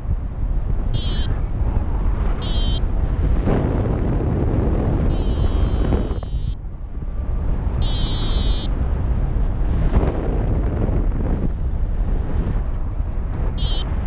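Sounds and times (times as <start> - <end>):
wind buffeting microphone: 0.0 - 14.0
warbling electronic beep: 1.0 - 1.4, 2.4 - 2.8, 5.1 - 6.6.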